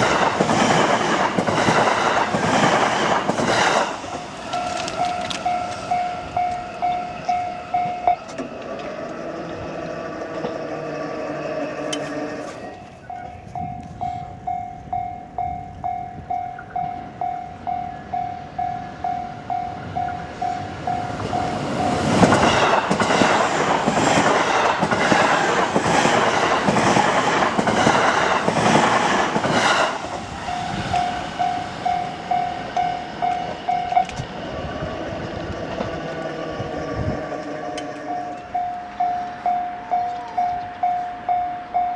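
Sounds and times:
train wheels clacking: 0.0s - 17.0s, 18.6s - 34.5s, 35.2s - 41.9s
electric train passing: 0.0s - 41.9s
level-crossing warning bell: 3.0s - 25.2s, 30.0s - 35.4s, 36.0s - 41.9s.

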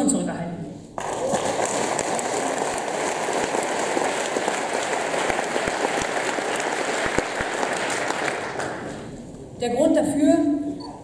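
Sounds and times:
audience applauding: 1.0s - 9.2s.

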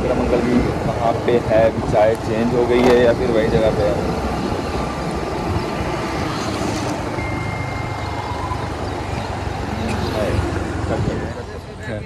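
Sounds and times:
road and traffic noise: 0.0s - 12.0s
scooter engine: 4.1s - 11.9s.

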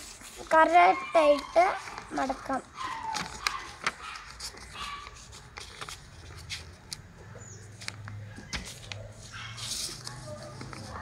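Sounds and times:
paper rustling and crinkling: 0.0s - 7.0s, 7.7s - 11.0s.

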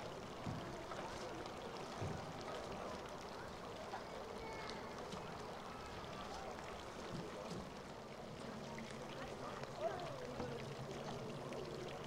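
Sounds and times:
faint outdoor background noise: 0.0s - 12.0s.

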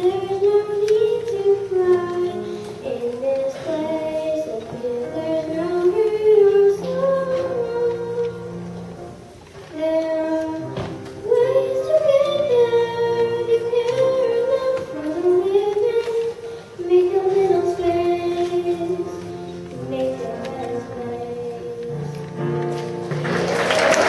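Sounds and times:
girl singing into microphone: 0.0s - 22.9s
musical accompaniment: 0.0s - 24.0s.

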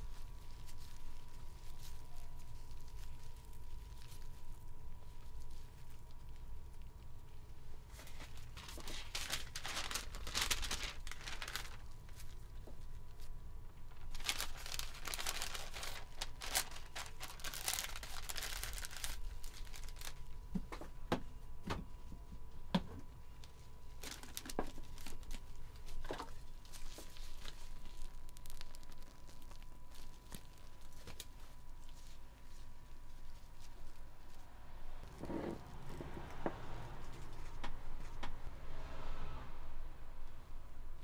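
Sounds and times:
paper crinkling and rustling: 0.0s - 21.0s, 22.0s - 38.4s.

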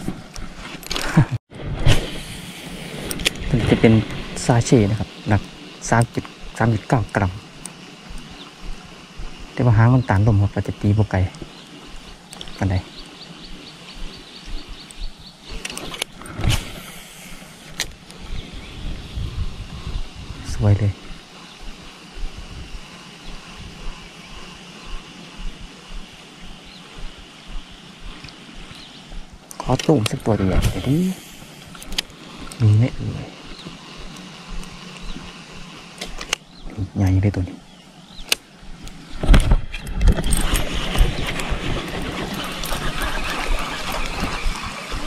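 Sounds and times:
steady high hiss: 0.0s - 45.0s
wind buffeting microphone: 1.7s - 16.7s, 17.9s - 32.0s.

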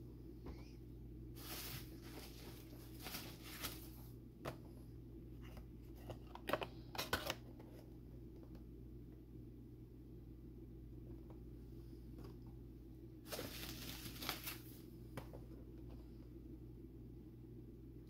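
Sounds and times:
low steady hum: 0.0s - 18.0s
bubble wrap rustling: 1.4s - 4.1s, 13.3s - 14.9s.

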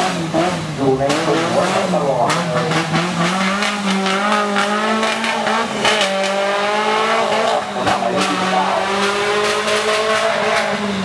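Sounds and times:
truck engine at high revs: 0.0s - 11.0s.

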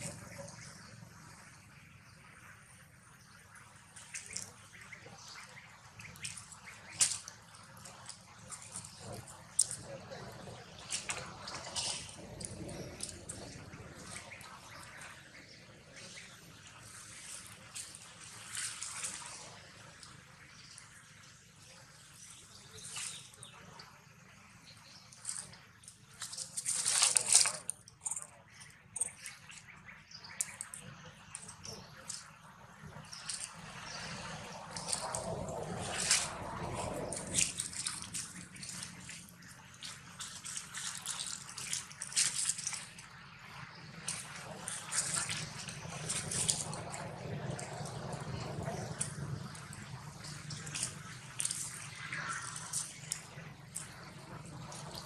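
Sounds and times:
dry leaves crackling: 26.1s - 28.3s, 32.9s - 39.4s, 43.9s - 55.0s.

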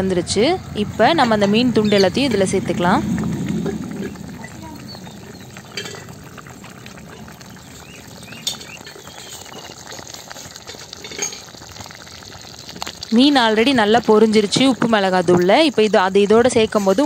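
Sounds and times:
curry bubbling at a boil: 0.8s - 17.0s
ladle stirring: 1.2s - 17.0s.

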